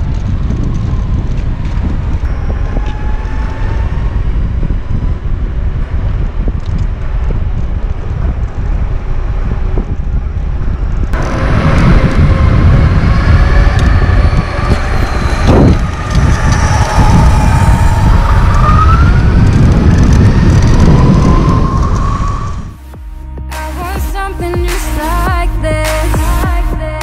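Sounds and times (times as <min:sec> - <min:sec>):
wind on microphone: 0:00.0 - 0:23.0
wheels rumbling on street: 0:00.0 - 0:23.4
electric motor whine: 0:11.2 - 0:22.6.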